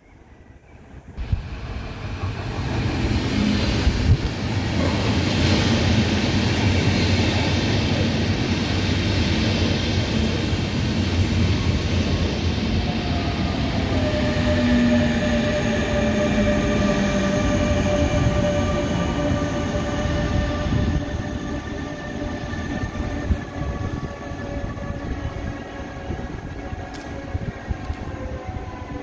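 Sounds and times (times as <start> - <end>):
train wheels rumbling on rail: 0.9 - 29.0
locomotive whine: 11.1 - 29.0.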